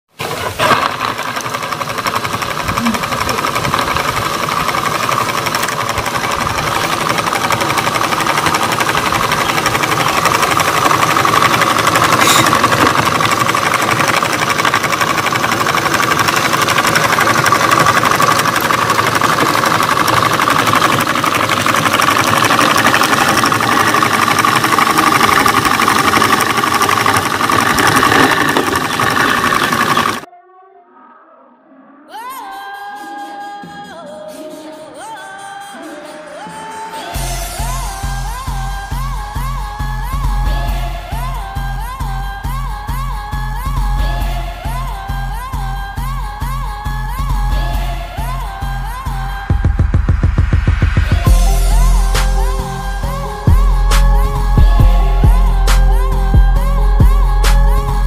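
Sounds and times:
model engine rattling: 0.1s - 30.3s, 37.2s - 49.5s
motor whine: 0.2s - 30.3s, 37.0s - 58.0s.

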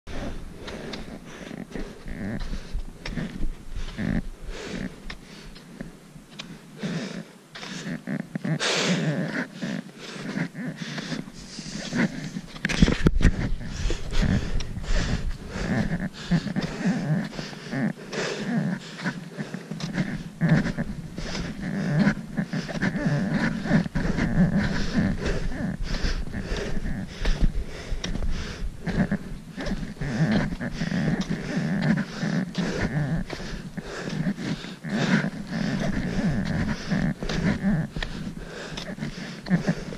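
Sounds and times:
person breathing hard: 0.1s - 39.9s.

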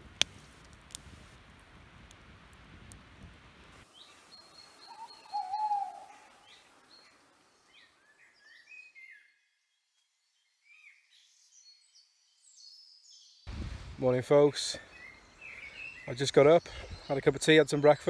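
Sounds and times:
small birds chirping: 3.8s - 18.0s
owl hooting: 4.8s - 6.4s.

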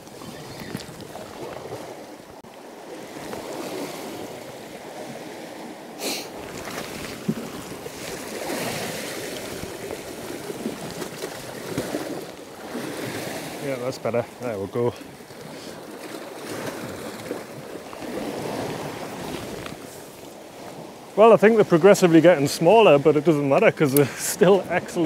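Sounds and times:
sea swell washing over rocks: 0.0s - 14.3s, 15.4s - 23.0s
wind buffeting microphone: 6.4s - 13.6s.

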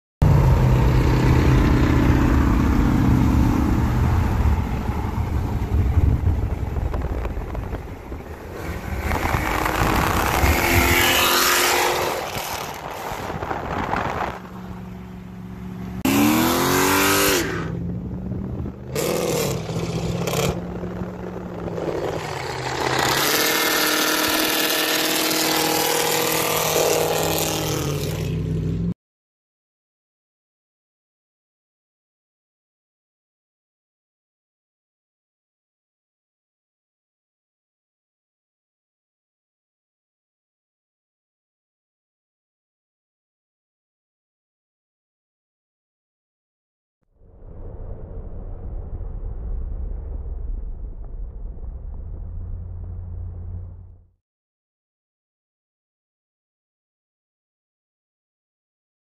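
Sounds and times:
car engine accelerating: 0.2s - 28.9s
road noise: 0.2s - 29.0s, 51.2s - 54.1s.

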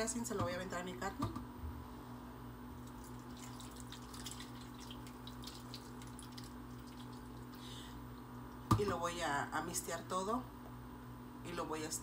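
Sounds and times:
steady low hum: 0.0s - 12.0s
marinade splattering and dripping: 2.8s - 7.6s.

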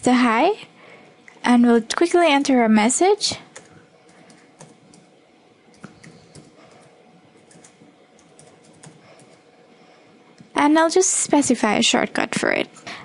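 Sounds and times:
keyboard typing clicks: 5.7s - 6.8s, 7.5s - 9.4s.

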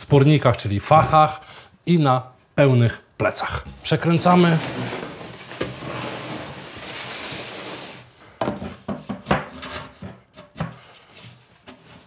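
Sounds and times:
board rubbing across table top: 4.4s - 8.1s.

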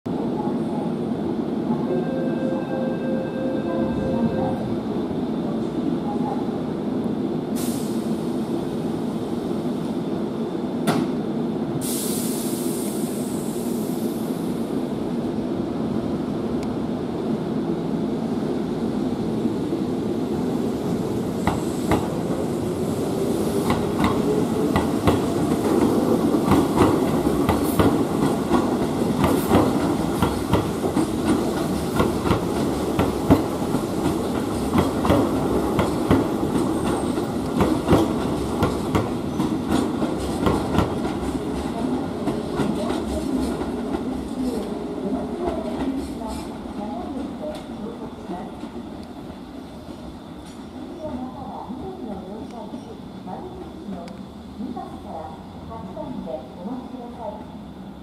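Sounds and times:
electric train hum: 0.1s - 58.0s
air hiss bursts: 7.6s - 8.2s, 11.8s - 14.5s.

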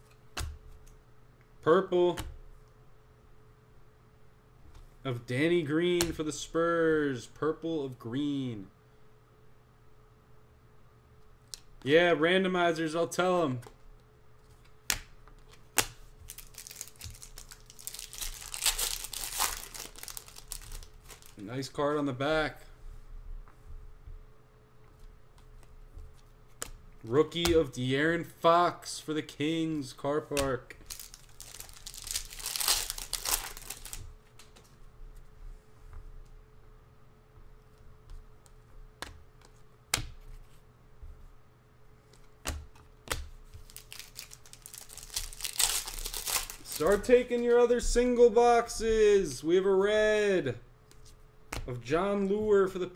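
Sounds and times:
faint steady hum: 0.0s - 52.9s
foil wrapper crinkling and tearing: 16.2s - 21.4s, 30.8s - 34.1s, 43.6s - 47.3s.

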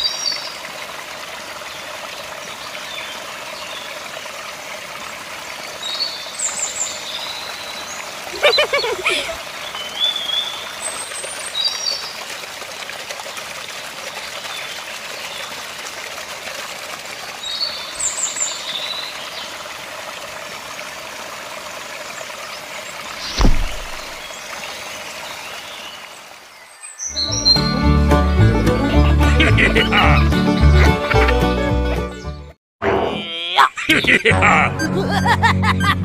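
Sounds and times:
water trickling from a tube: 8.9s - 25.5s
sharp thump: 23.2s - 24.2s.

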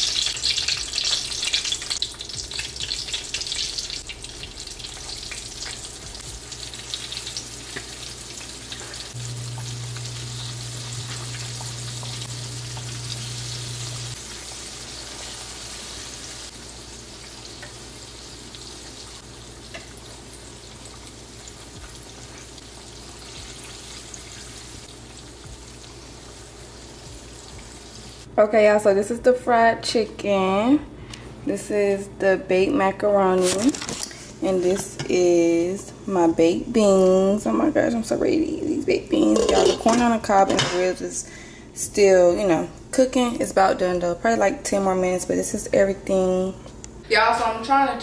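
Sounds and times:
chicken sizzling in hot oil: 0.0s - 28.3s
low steady hum: 1.7s - 47.1s.

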